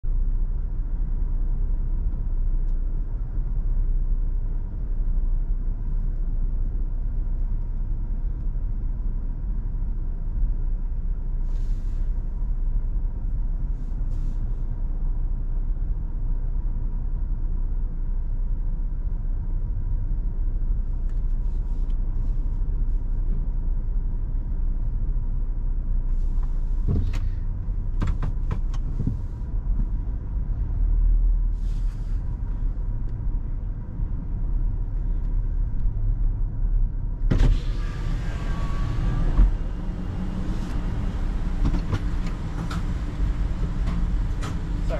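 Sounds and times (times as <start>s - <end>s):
thump: 26.8s - 27.4s, 37.3s - 37.6s
car idling: 31.6s - 44.9s.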